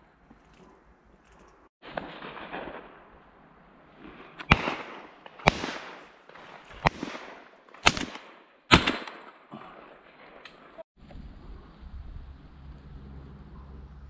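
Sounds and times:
shotgun shots echoing: 1.8s - 3.4s, 4.0s - 10.8s.

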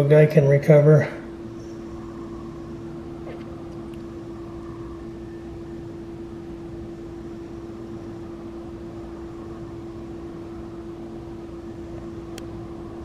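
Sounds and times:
steady machine hum: 0.0s - 13.0s.

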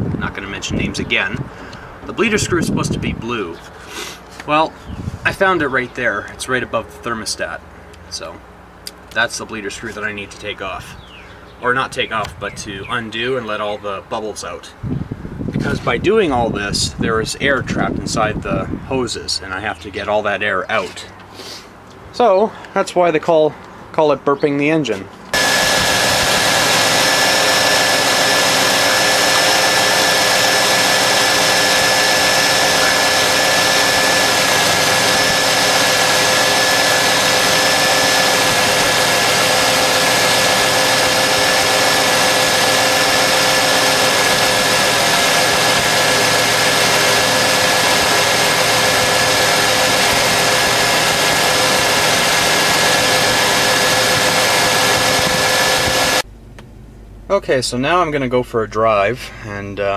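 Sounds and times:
engine whine: 25.3s - 56.9s
car engine idling: 25.4s - 56.2s.

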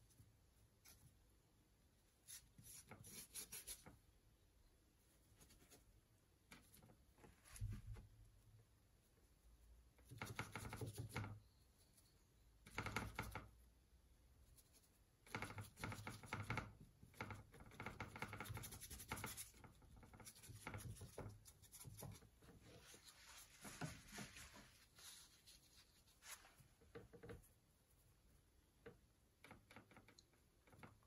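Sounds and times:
scratchy brush strokes: 2.0s - 4.0s, 14.3s - 16.3s, 18.0s - 28.7s.

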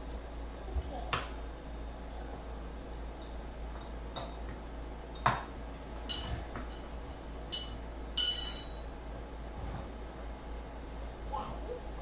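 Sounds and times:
metal tools clinking on metal: 6.1s - 6.9s, 7.5s - 8.9s.

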